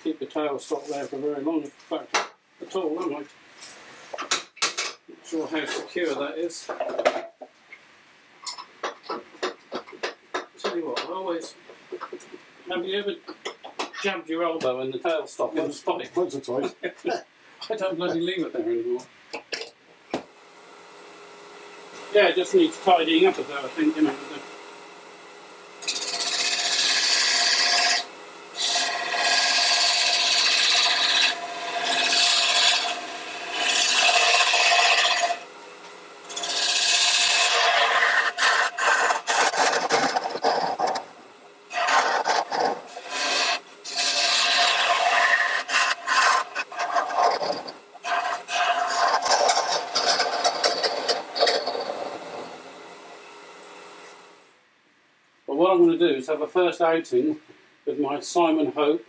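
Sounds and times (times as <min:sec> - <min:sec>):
lathe tool scraping wood: 0:21.8 - 0:24.6, 0:25.8 - 0:35.5, 0:36.2 - 0:53.2.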